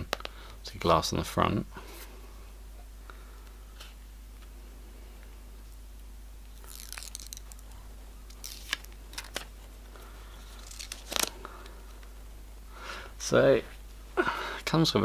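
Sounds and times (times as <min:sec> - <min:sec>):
plastic film crinkling: 0:06.5 - 0:12.0.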